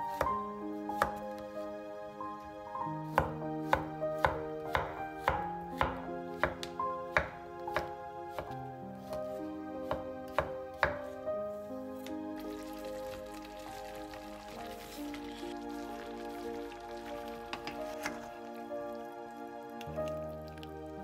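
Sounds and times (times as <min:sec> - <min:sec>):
background music: 0:00.0 - 0:21.0.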